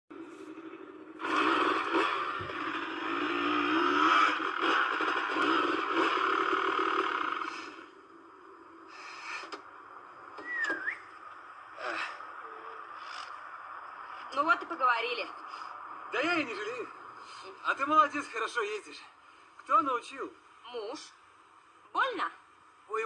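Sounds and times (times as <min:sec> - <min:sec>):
motorcycle engine running: 0:00.1 - 0:08.9
sliding whistle: 0:10.4 - 0:11.2.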